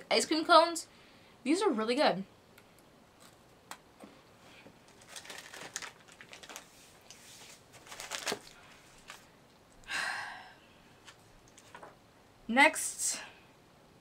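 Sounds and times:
snack packaging crinkling: 0:04.8 - 0:09.3.

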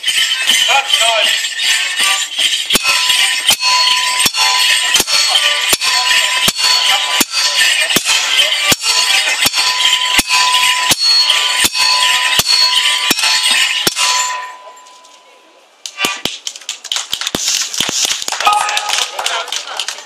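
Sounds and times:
drum beats: 0:00.0 - 0:14.4
dance sticks clashing: 0:00.0 - 0:15.0, 0:15.9 - 0:19.4
bells jingling: 0:00.0 - 0:15.6, 0:18.3 - 0:19.9.

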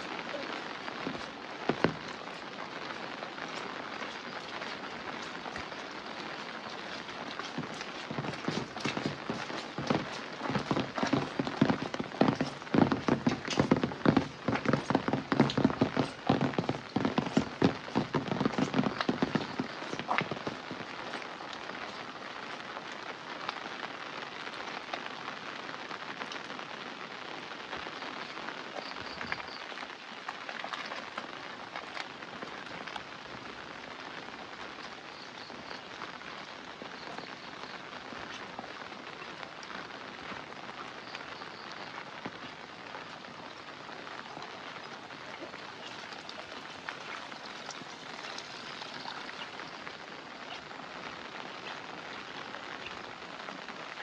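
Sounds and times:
steady rain falling: 0:00.0 - 0:54.0.

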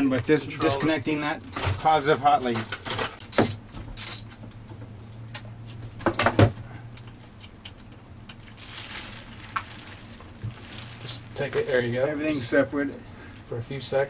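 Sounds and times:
steady low hum: 0:00.0 - 0:14.0
metal clinks and knocks: 0:03.3 - 0:04.4.

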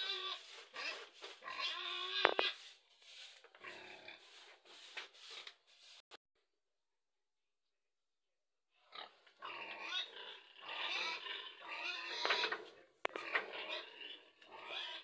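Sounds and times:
pigs squealing and grunting: 0:00.0 - 0:02.6, 0:08.8 - 0:15.0.

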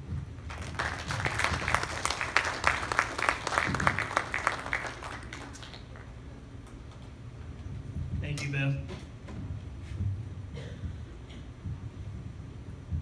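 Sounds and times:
audience applauding: 0:00.5 - 0:06.2.

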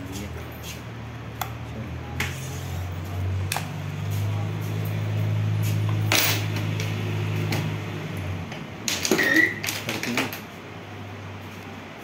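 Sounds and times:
brief squeak: 0:09.2 - 0:09.7.

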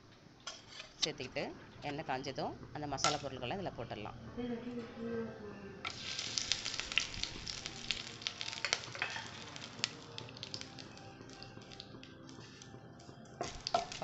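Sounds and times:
spices sizzling in hot oil: 0:05.9 - 0:12.7, 0:13.4 - 0:14.0.

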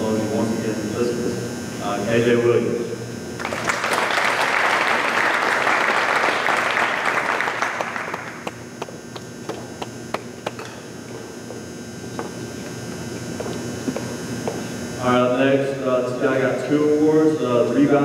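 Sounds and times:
small audience applauding: 0:03.4 - 0:10.6.

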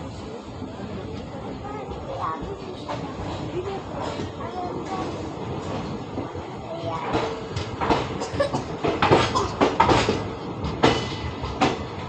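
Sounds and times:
train coach rumbling: 0:00.0 - 0:12.0
clanks and knocks of couplings: 0:07.0 - 0:12.0.

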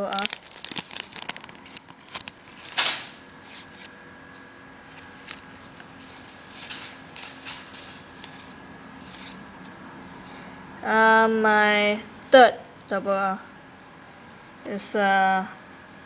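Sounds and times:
cards clicking and rustling: 0:00.0 - 0:03.9, 0:04.9 - 0:09.4.

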